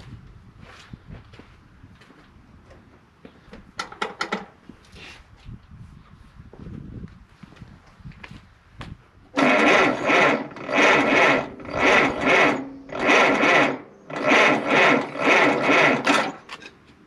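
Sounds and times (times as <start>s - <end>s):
starter cranking tractor engine: 9.4s - 16.7s.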